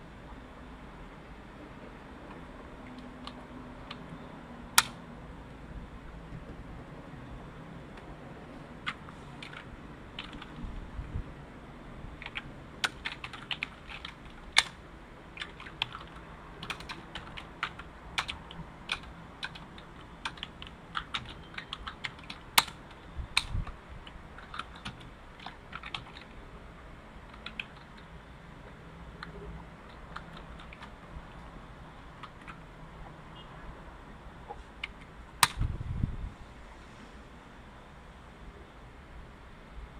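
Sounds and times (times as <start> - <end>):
computer keyboard typing: 4.8 - 5.0, 8.8 - 10.7, 12.2 - 26.4, 27.2 - 28.2, 29.1 - 32.7, 34.8 - 35.6.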